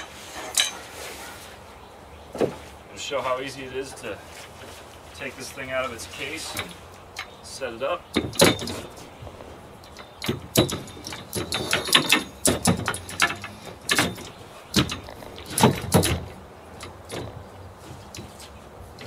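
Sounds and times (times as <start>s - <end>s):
legs knocking on wooden deck: 8.1s - 19.0s
metal frame clanking: 8.1s - 19.0s.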